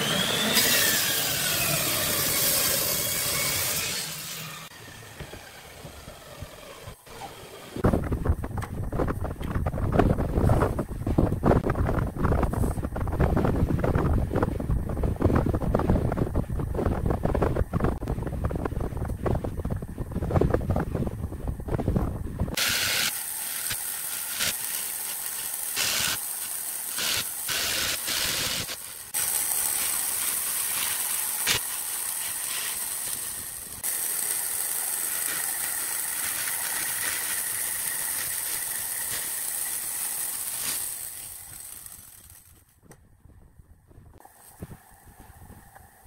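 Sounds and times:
jigsaw cutting wood: 0:00.0 - 0:07.8, 0:22.6 - 0:42.6.

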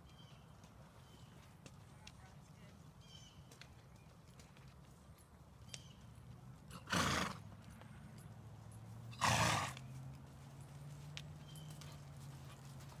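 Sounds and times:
faint hoofbeats on dirt: 0:00.0 - 0:13.0
horse snorting: 0:06.7 - 0:07.4, 0:09.1 - 0:09.8.

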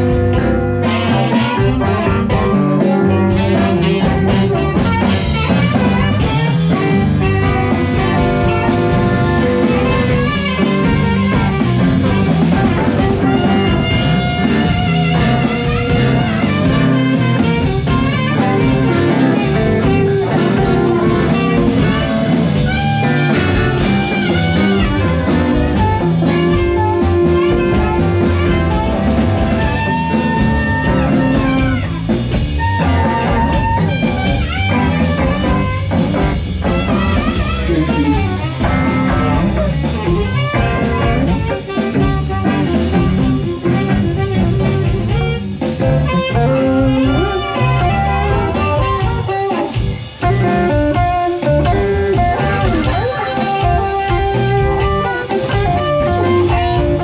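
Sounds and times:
drums: 0:00.0 - 0:57.0
electric guitar: 0:00.0 - 0:57.0
harmonica: 0:00.0 - 0:57.0
live blues band: 0:00.0 - 0:57.0
saxophone: 0:00.0 - 0:57.0.

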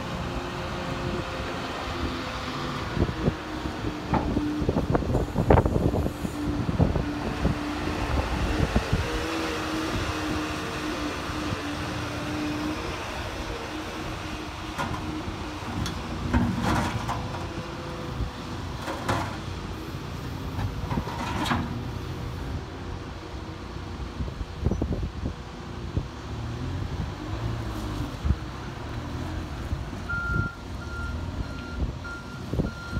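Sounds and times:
diesel engine whining: 0:00.0 - 0:32.9.

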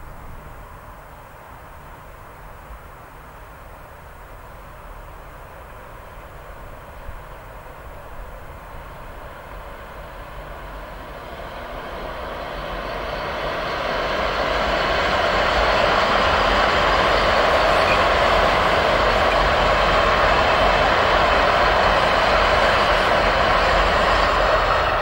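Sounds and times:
diesel locomotive passing: 0:05.5 - 0:25.0.

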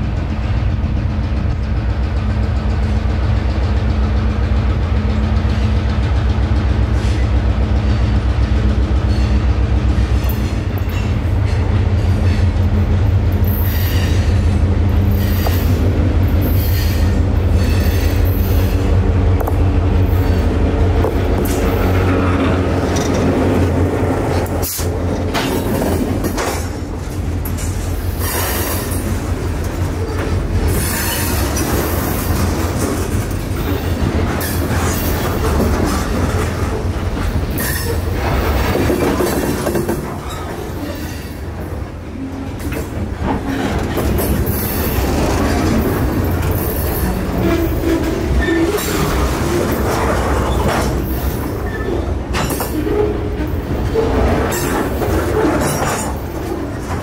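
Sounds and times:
diesel locomotive passing: 0:00.0 - 0:57.0
wheels clicking over rail joints: 0:09.0 - 0:57.0
wheel squeal: 0:51.5 - 0:53.2.

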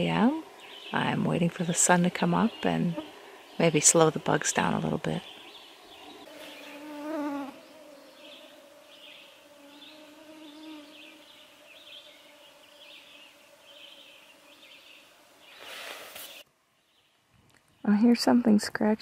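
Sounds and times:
fly buzzing: 0:01.7 - 0:03.8, 0:04.7 - 0:16.5
mosquitoes whining: 0:05.2 - 0:16.4.

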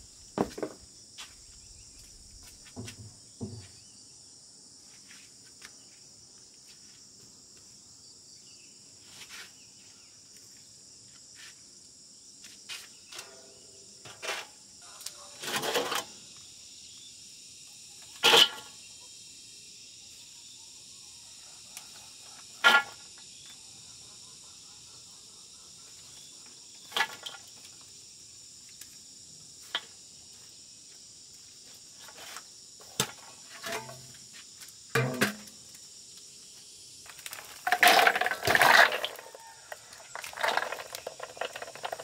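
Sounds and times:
insects chirring: 0:00.0 - 0:42.0
metal basin moved: 0:13.2 - 0:14.6, 0:15.4 - 0:16.2, 0:18.2 - 0:18.7, 0:32.9 - 0:34.2, 0:34.9 - 0:35.6, 0:37.4 - 0:42.0
dry plants rustling into metal basin: 0:14.0 - 0:14.6, 0:15.4 - 0:16.2, 0:18.2 - 0:18.7, 0:26.8 - 0:27.8, 0:32.0 - 0:35.7, 0:37.0 - 0:42.0.

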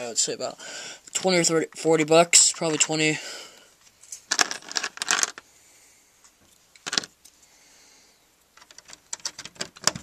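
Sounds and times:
plastic bricks clicking and clattering: 0:04.3 - 0:05.4, 0:06.8 - 0:07.1, 0:08.6 - 0:10.0.

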